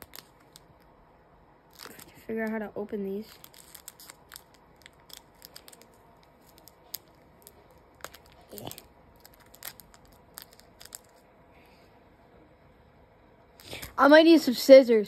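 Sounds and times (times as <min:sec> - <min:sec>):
plastic wrapper crinkling: 0:00.0 - 0:00.9, 0:01.7 - 0:11.2, 0:13.6 - 0:14.0.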